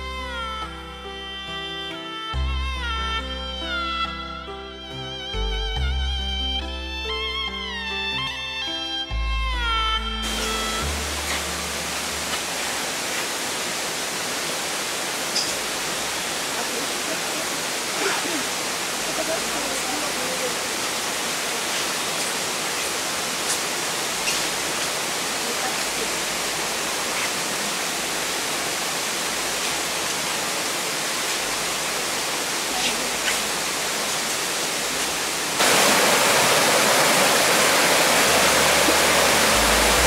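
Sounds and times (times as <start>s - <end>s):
stream flowing over rocks: 10.2s - 40.0s.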